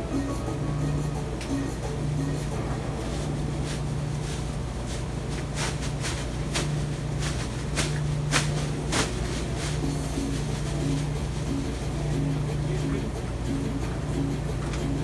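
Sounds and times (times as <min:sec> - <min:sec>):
washing machine motor hum: 0:00.0 - 0:15.0
clothes thudding in drum: 0:03.0 - 0:11.1.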